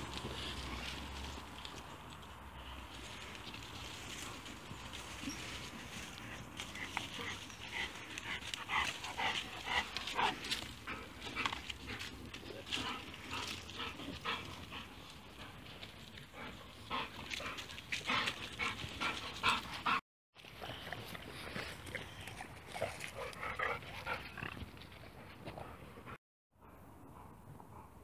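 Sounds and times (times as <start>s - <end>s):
dogs playing: 0.0s - 26.2s.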